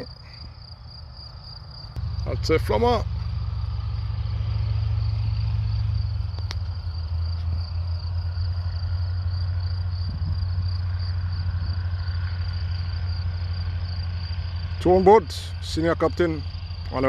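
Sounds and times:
aircraft piston engines droning: 0.0s - 17.0s
crickets chirping: 0.0s - 17.0s.

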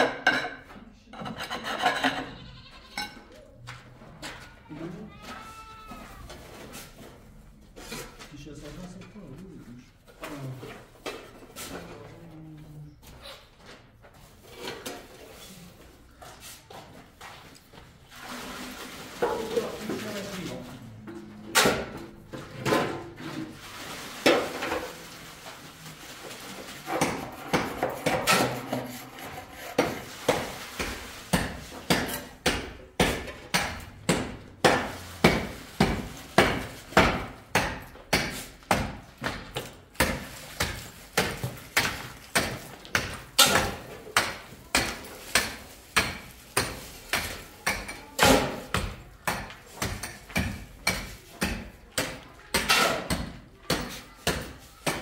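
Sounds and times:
hand tool striking hard surface: 26.9s - 55.0s.

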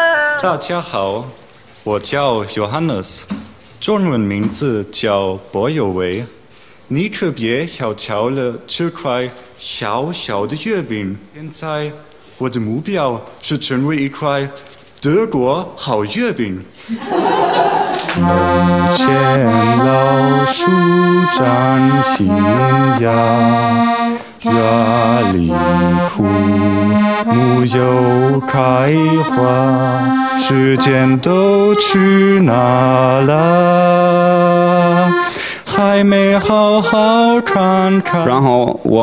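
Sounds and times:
accordion playing a tune: 18.0s - 38.8s.

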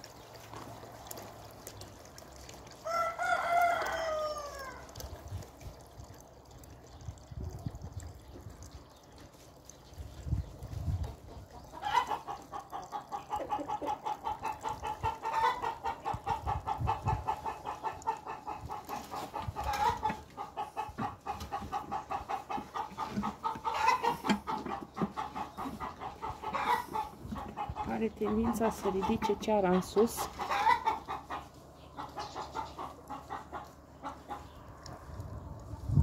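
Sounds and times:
hen clucking: 10.2s - 36.0s.

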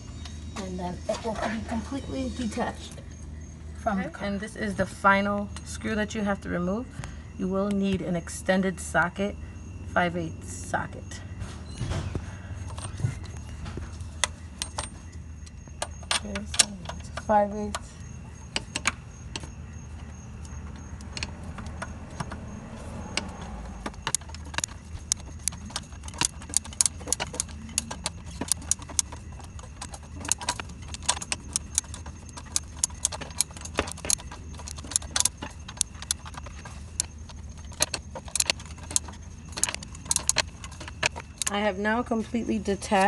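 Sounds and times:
steady low hum: 0.0s - 43.0s
ratchet clicking: 20.4s - 41.6s.

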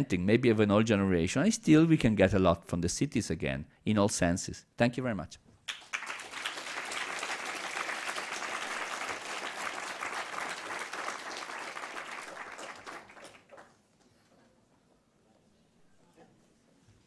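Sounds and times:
audience applauding: 5.7s - 13.8s.

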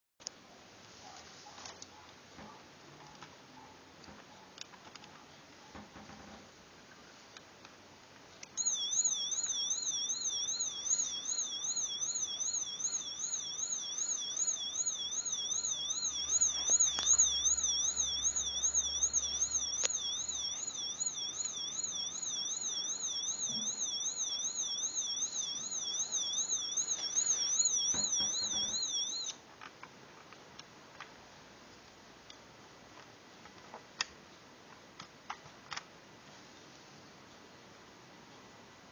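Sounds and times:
electronic siren warbling: 8.6s - 29.4s.

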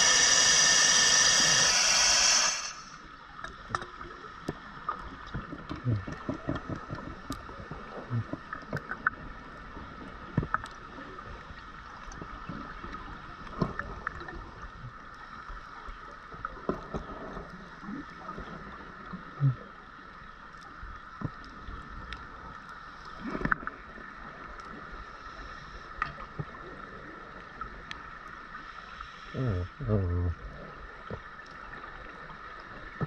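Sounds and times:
steady high hum: 0.0s - 3.0s.

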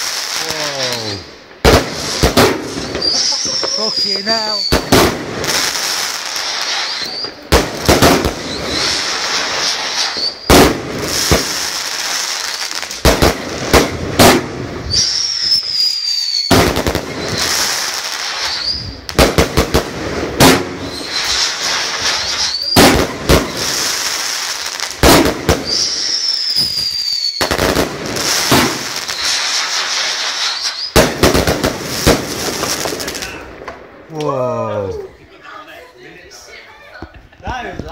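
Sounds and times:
fireworks bangs: 0.0s - 34.2s
fireworks crackling: 0.0s - 37.9s
fireworks whistles sliding in pitch: 0.2s - 1.3s, 2.7s - 7.4s, 8.2s - 10.6s, 14.8s - 19.0s, 20.8s - 24.1s, 25.6s - 31.0s.

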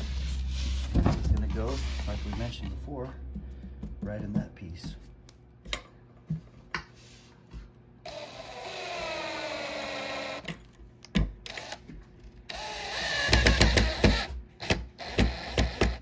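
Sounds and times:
cordless drill driving screws: 8.1s - 10.5s, 11.5s - 11.8s, 12.5s - 16.0s
rapid drill clutch clicks: 11.5s - 11.8s.

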